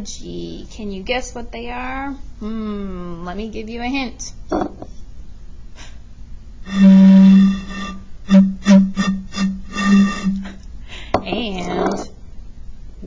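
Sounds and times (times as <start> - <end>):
bottle blown hooting tone: 6.7 - 10.6.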